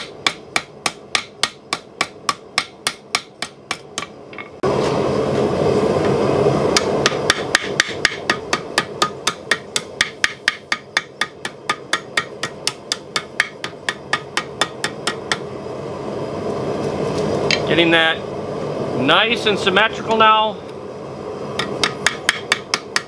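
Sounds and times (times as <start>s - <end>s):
hammer striking hot steel: 0.0s - 4.6s, 6.7s - 15.5s, 21.5s - 23.0s.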